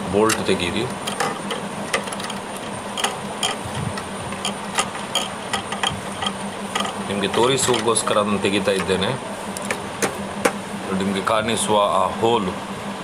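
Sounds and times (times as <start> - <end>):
steady low hum: 0.0 - 13.0
metallic clicks and rattles: 0.2 - 9.0.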